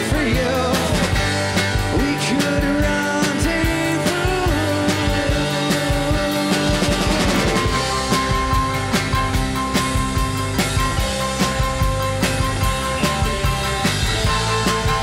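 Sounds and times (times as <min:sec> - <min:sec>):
man singing lead: 0:00.0 - 0:07.9
live rock band playing: 0:00.0 - 0:15.0.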